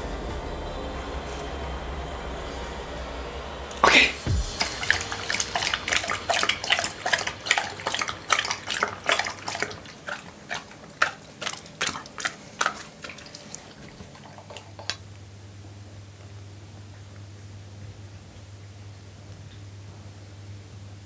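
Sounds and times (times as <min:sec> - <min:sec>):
dog lapping from a bowl: 0:04.2 - 0:15.1.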